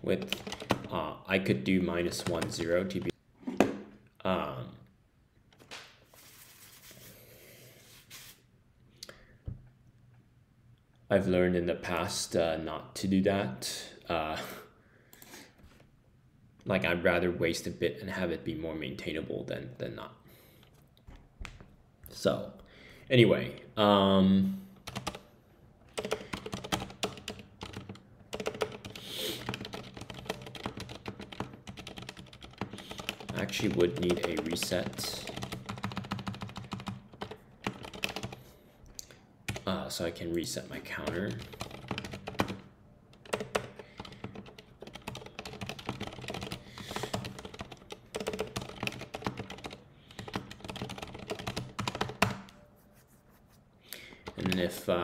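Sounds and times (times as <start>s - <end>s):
typing on computer keyboard: 0.2s - 1.0s, 24.8s - 25.2s, 25.9s - 38.4s, 41.0s - 52.6s, 54.1s - 54.9s.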